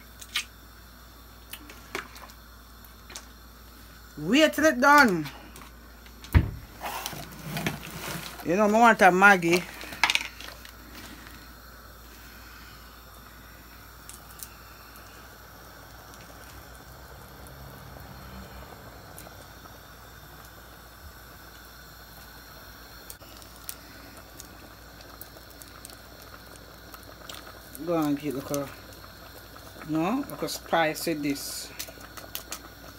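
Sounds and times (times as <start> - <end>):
pot bubbling on stove: 0.0 - 32.9.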